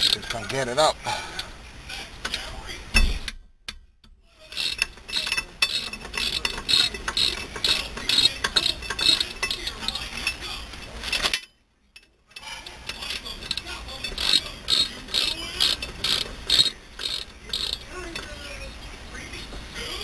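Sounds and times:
socket ratchet clicking: 0:04.6 - 0:09.7, 0:13.4 - 0:17.9.

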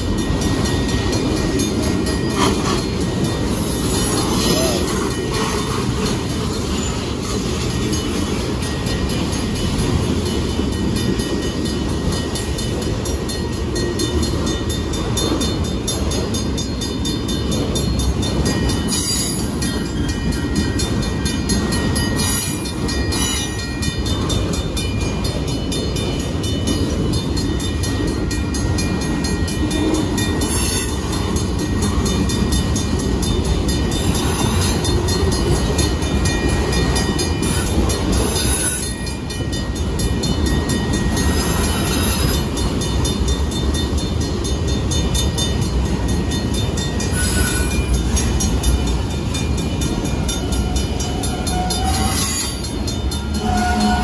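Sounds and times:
train wheels rumbling on rails: 0:00.0 - 0:54.0
high wheel squeaks: 0:47.0 - 0:48.0, 0:50.2 - 0:54.0.

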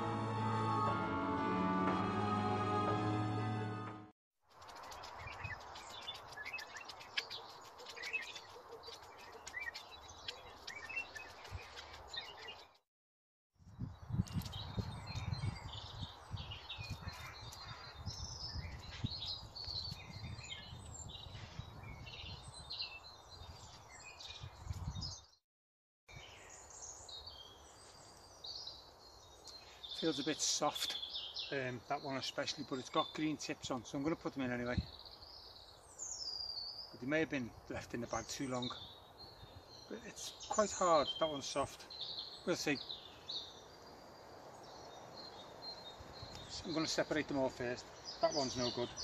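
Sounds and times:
songbirds chirping and singing: 0:04.6 - 0:12.7, 0:14.3 - 0:25.3, 0:26.1 - 0:49.0
steady outdoor hiss: 0:26.4 - 0:49.0.

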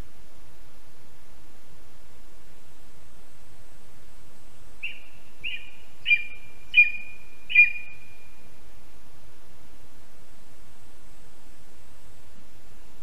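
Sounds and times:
eagle calling: 0:04.8 - 0:08.3.

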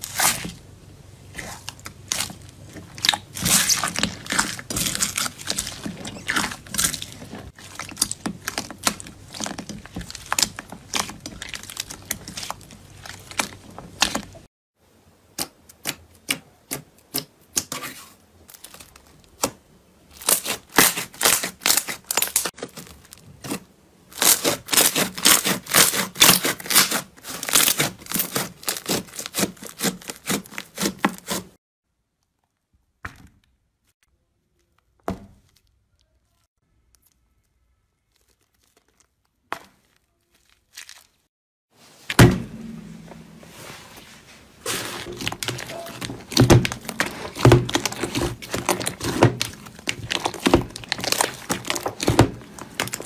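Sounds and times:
sticky slime popping: 0:01.3 - 0:14.4, 0:45.0 - 0:53.0
slime crackling and clicking: 0:45.2 - 0:53.0.

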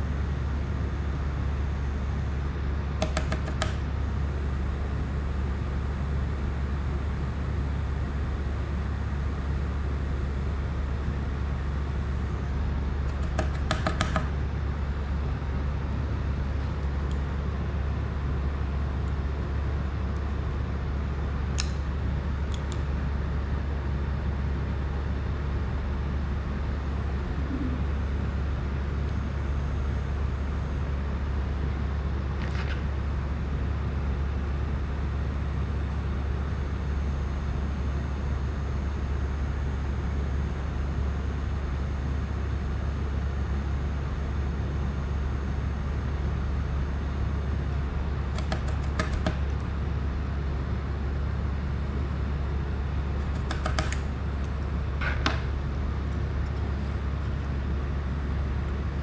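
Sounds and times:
steady low hum: 0:00.0 - 0:59.0
rapid clicking of small tools: 0:48.3 - 0:49.6, 0:53.2 - 0:54.1.

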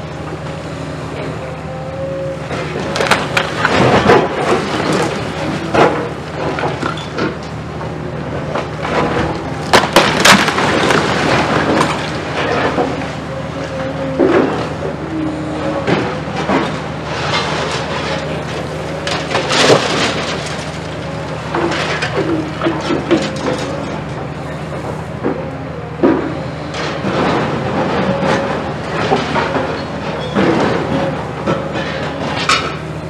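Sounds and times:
excavator diesel engine: 0:00.0 - 0:33.0
concrete and brick crunching: 0:08.7 - 0:14.7.

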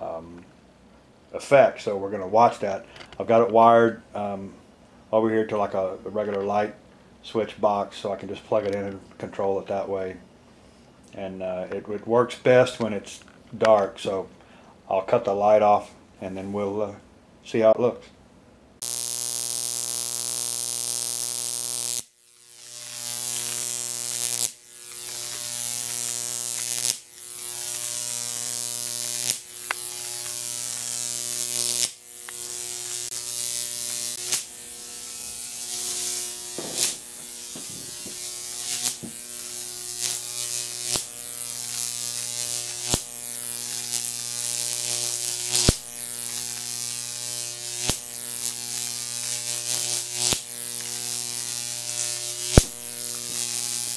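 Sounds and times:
steady electrical hum: 0:00.0 - 0:53.9
electric arc buzzing and hissing: 0:18.8 - 0:53.9
sharp pops: 0:35.7 - 0:39.4, 0:42.7 - 0:43.1, 0:45.5 - 0:45.9, 0:52.5 - 0:53.5.

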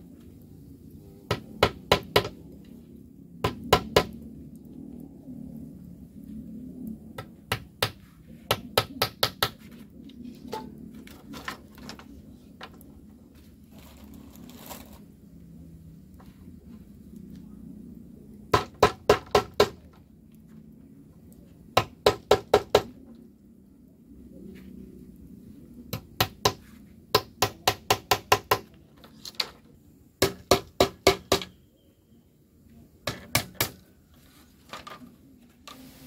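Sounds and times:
hammer tapping on bamboo: 0:01.3 - 0:02.4, 0:03.4 - 0:04.2, 0:07.2 - 0:09.6, 0:18.5 - 0:20.0, 0:21.8 - 0:22.9, 0:25.9 - 0:28.8, 0:30.2 - 0:31.6, 0:33.0 - 0:33.8.

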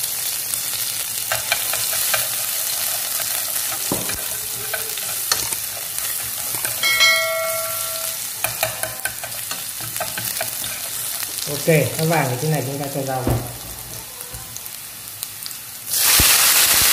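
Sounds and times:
garlic sizzling in hot oil: 0:00.0 - 0:16.9
bell-like ding: 0:06.8 - 0:08.2.

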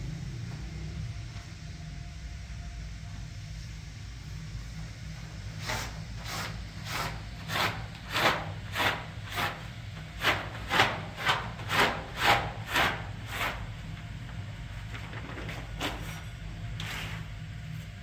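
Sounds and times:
steady low hum: 0:00.0 - 0:18.0
rhythmic rubbing strokes: 0:05.6 - 0:13.7.

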